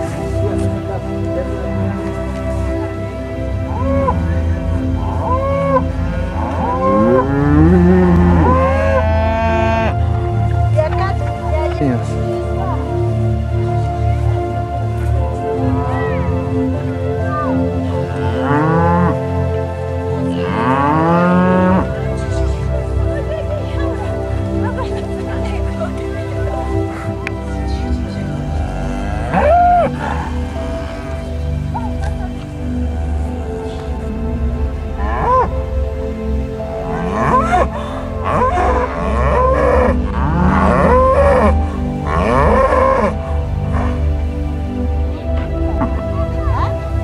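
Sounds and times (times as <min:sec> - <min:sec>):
background music: 0:00.0 - 0:47.0
cattle mooing: 0:05.0 - 0:10.0, 0:17.8 - 0:19.2, 0:20.2 - 0:22.4, 0:28.3 - 0:34.3, 0:35.0 - 0:35.7, 0:36.7 - 0:44.1.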